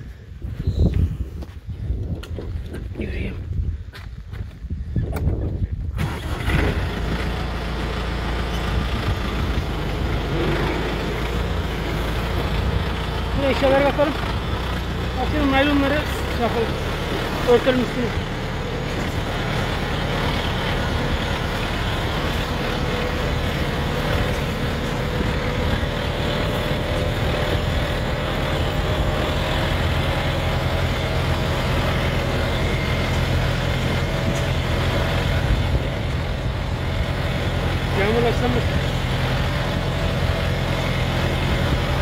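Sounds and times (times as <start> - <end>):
tractor diesel engine running: 5.6 - 42.0.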